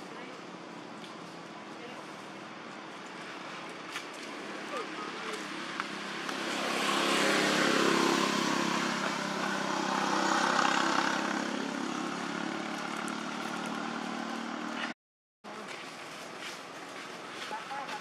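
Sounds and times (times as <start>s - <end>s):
vehicle engine passing: 4.3s - 15.0s.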